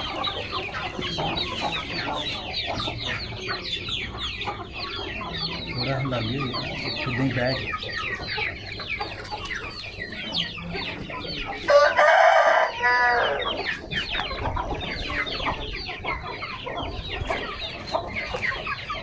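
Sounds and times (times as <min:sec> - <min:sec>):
chickens clucking: 0:00.0 - 0:19.0
rooster crowing: 0:11.7 - 0:13.5.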